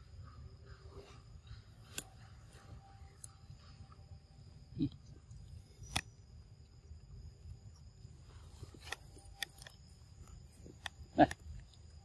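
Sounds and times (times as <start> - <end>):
steady high-pitched tone: 0.0 - 8.4.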